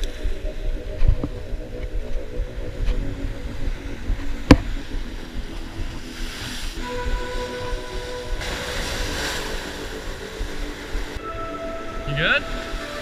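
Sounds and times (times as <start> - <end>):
steady whining tone: 0.0 - 13.0
wind buffeting microphone: 0.0 - 13.0
surf washing against rocks: 4.5 - 11.2.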